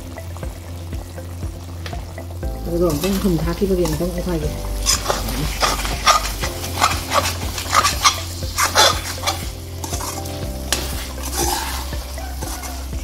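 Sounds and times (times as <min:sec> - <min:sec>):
food sizzling: 0:00.0 - 0:13.0
metal spoon scraping pot: 0:04.8 - 0:12.8.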